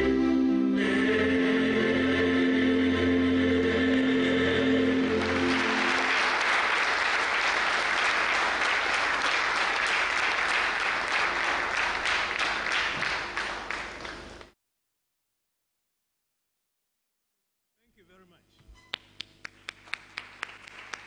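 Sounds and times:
song with singer and keyboard: 0.0s - 5.8s
audience applause: 5.0s - 14.4s, 19.4s - 21.0s.

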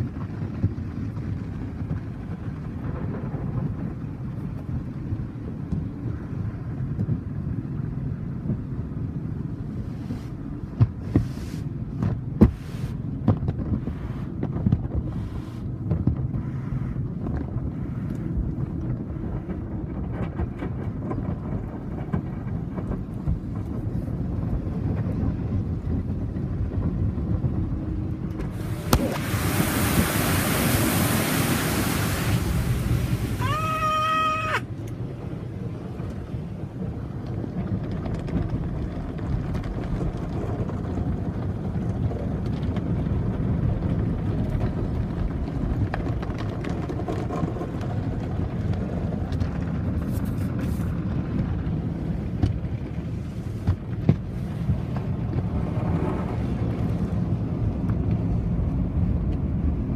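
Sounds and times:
car wash machinery rumble: 0.0s - 59.9s
rush of water spray: 9.7s - 11.8s, 12.4s - 13.1s, 15.1s - 15.7s, 28.5s - 34.7s.

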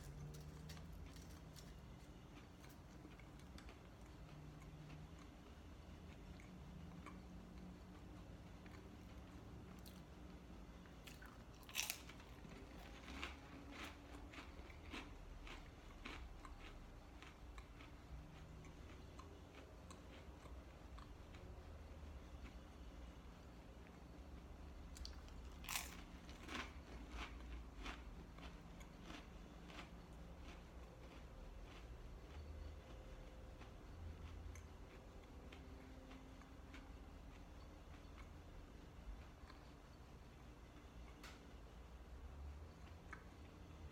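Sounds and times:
cracker crunching: 0.0s - 5.3s, 11.0s - 20.2s, 25.0s - 33.0s
faint low hum: 0.0s - 43.9s.

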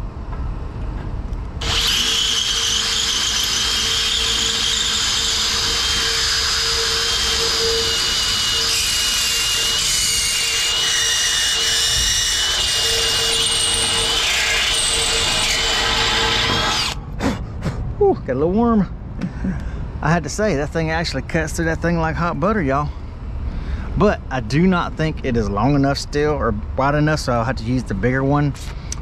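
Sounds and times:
cordless drill cutting metal: 1.6s - 17.0s.

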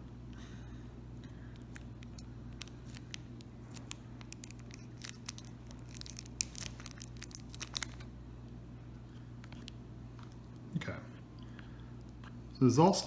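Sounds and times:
plastic sachet crinkling: 1.5s - 8.1s.

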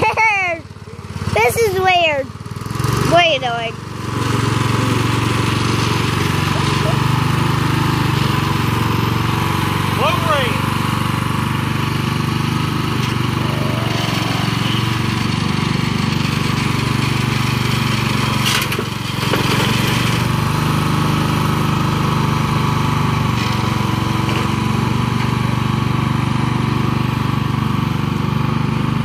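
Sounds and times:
lawn tractor engine running: 0.0s - 29.0s.

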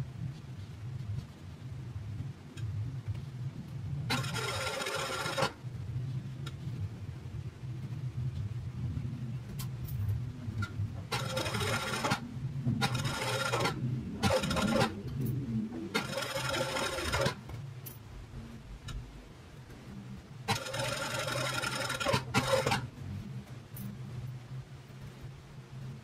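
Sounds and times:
sewing machine stitching: 4.1s - 5.6s, 11.1s - 12.2s, 12.8s - 15.0s, 15.9s - 17.4s, 20.5s - 22.9s.

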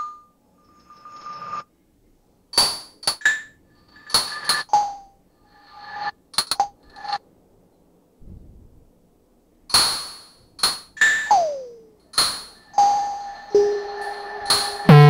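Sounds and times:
synthesized metallic pings: 12.6s - 15.0s
swelling synth tone: 12.8s - 15.0s.

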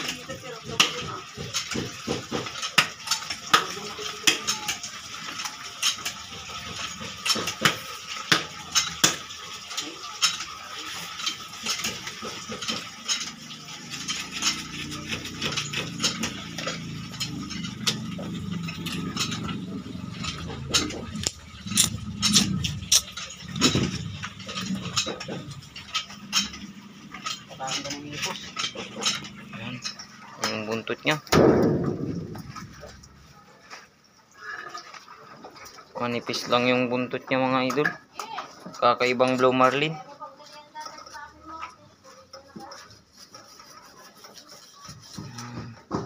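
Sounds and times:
sharp metallic knocks: 6.0s - 9.6s, 10.2s - 33.2s.

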